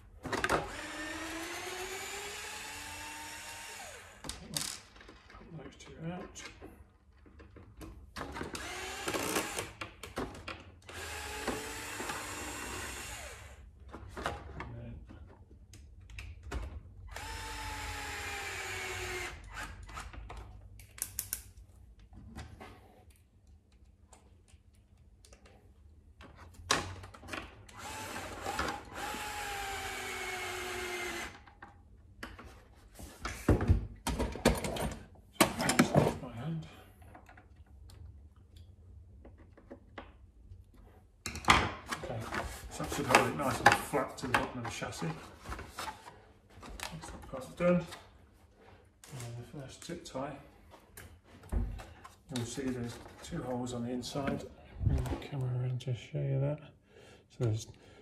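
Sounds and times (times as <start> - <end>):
cordless screwdriver whining: 0.6 - 4.3, 8.5 - 9.8, 10.8 - 13.6, 17.1 - 20.1, 27.7 - 31.5.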